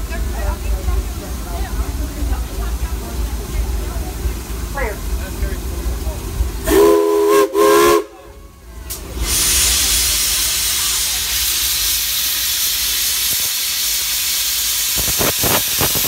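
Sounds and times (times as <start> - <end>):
steam locomotive whistle toots: 6.6 - 8.6
hiss of escaping steam: 8.9 - 16.0
steam puffs: 8.9 - 16.0.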